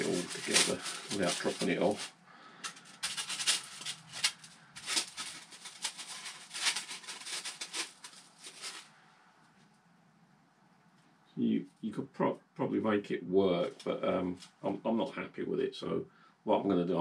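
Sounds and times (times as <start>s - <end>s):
foam parts scraping and squeaking: 0.0s - 2.1s, 2.8s - 8.9s.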